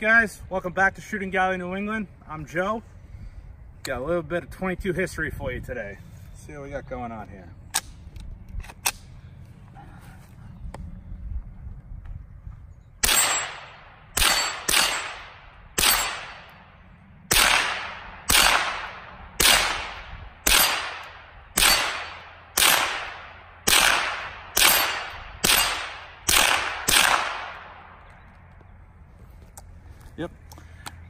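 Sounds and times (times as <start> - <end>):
rifle shots with echo: 13.0 - 16.7, 17.3 - 28.0.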